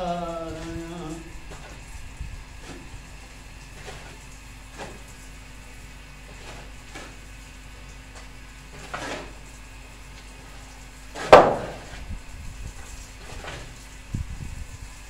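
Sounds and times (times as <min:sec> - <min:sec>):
metal shovel scraping cement: 0:03.7 - 0:05.1, 0:08.8 - 0:09.4.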